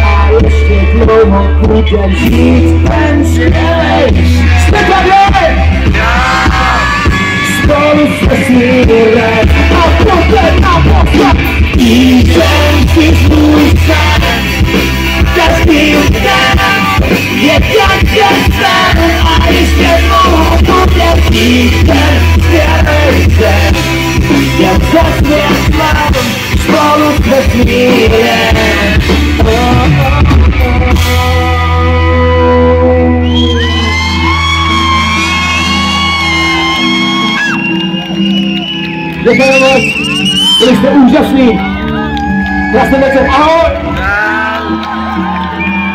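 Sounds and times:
live pop-rock band with singer: 0.0s - 45.9s
drumming: 2.2s - 31.4s.

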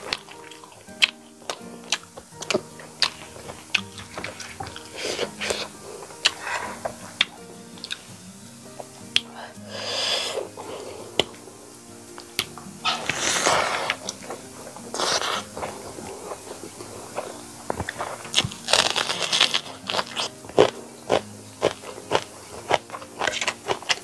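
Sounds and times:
mouth clicks and smacks: 0.0s - 8.1s
wet chewing: 0.0s - 8.1s, 12.2s - 24.0s
crunching bites into onion: 18.3s - 24.0s.

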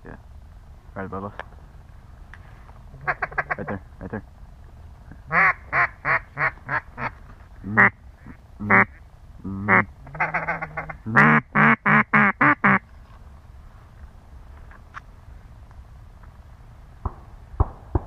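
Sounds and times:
duck call quacks: 3.0s - 3.8s, 5.3s - 7.1s, 7.7s - 12.8s.

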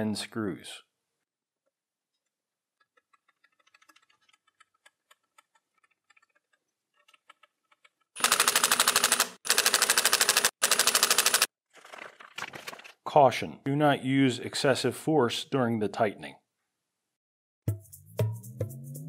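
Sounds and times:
small parts clicking: 2.2s - 11.5s.

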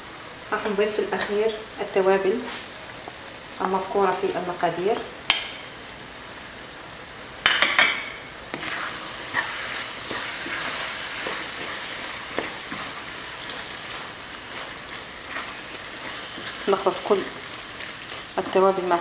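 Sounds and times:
tomato sauce sizzling: 0.0s - 19.0s
wooden spoon scraping pan: 8.5s - 18.8s.

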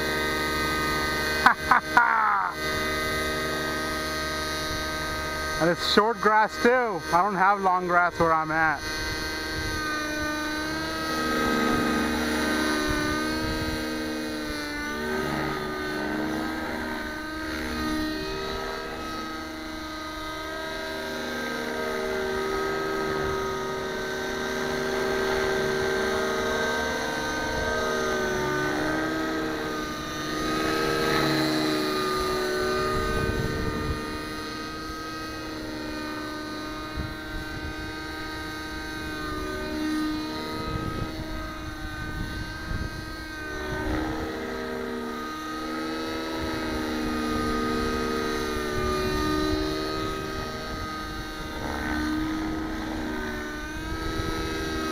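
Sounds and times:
rc helicopter engine and rotor whine: 0.0s - 54.9s.

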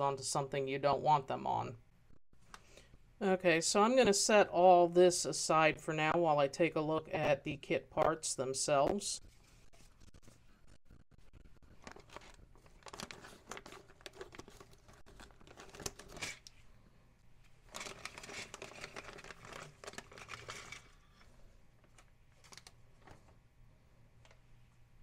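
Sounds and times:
plastic bag crinkling: 11.6s - 16.6s, 17.6s - 23.2s.

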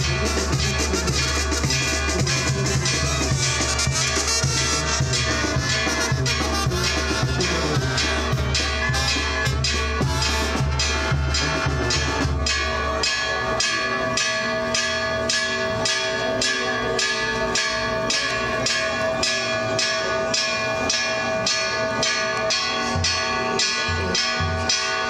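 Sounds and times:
drum beating: 0.0s - 15.8s
church bell ringing: 0.0s - 25.0s.

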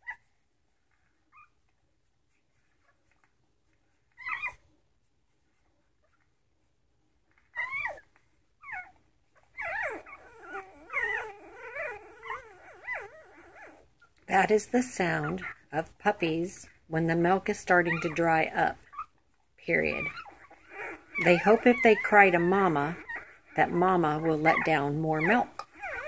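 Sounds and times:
puppies whimpering and crying: 0.0s - 0.3s, 4.1s - 4.8s, 7.3s - 26.0s.

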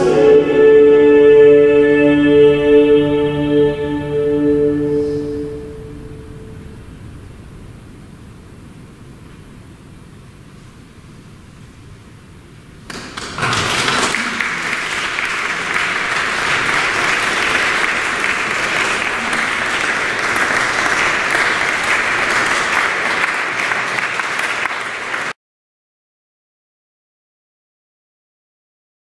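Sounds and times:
audience applauding: 12.9s - 25.4s.

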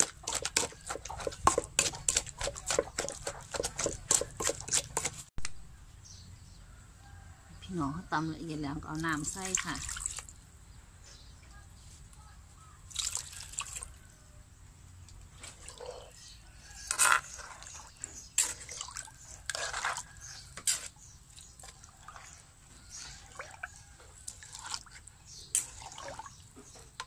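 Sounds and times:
liquid sloshing and dripping: 9.1s - 10.3s, 12.9s - 13.9s, 18.4s - 20.1s, 23.0s - 27.0s.

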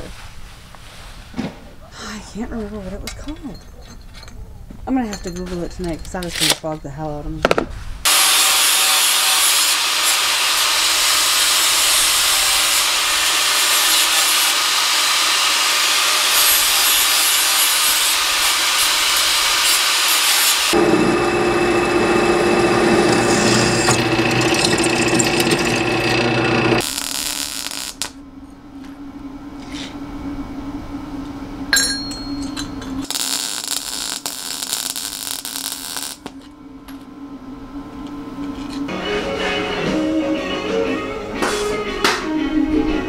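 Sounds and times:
angle grinder grinding metal: 8.1s - 28.1s, 33.0s - 36.3s
steady hum: 20.7s - 38.9s.

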